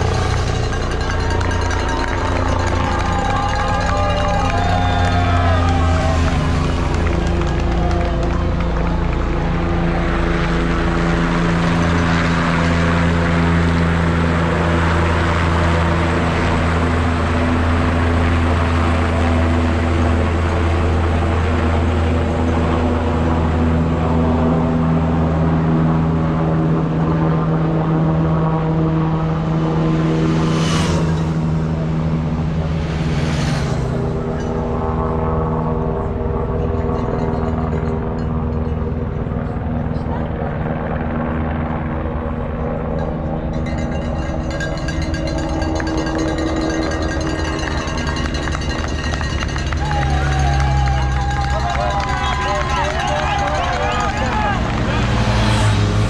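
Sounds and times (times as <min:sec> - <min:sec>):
helicopter hovering: 0:00.0 - 0:56.0.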